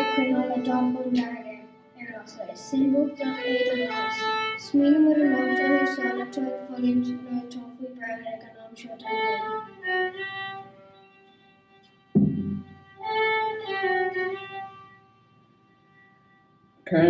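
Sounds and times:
fiddles playing slow melody: 0.0 - 7.4, 8.9 - 16.4
thump close to microphone: 12.2 - 12.8.

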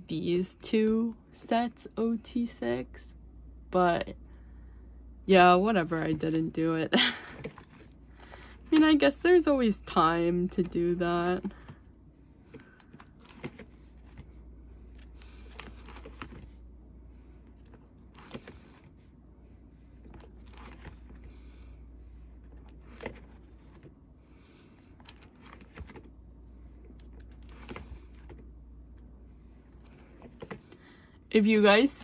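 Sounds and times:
low steady hum: 0.0 - 32.0
plastic pages rustling: 7.2 - 16.6, 17.4 - 19.0, 19.8 - 21.4, 22.3 - 30.8.

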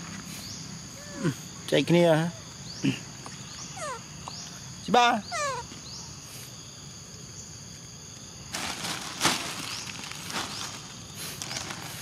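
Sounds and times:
rustling crunches: 8.5 - 12.0.

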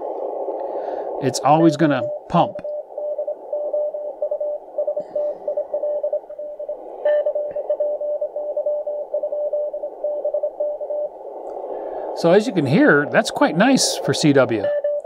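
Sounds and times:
radio hiss: 0.0 - 14.8
morse code tone: 1.4 - 11.1, 14.6 - 15.0.

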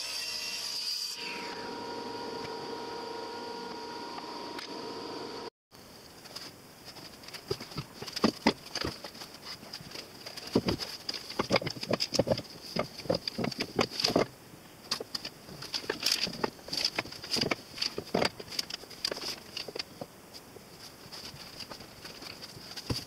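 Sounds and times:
wooden strips clacking: 6.2 - 14.3, 14.9 - 20.1.

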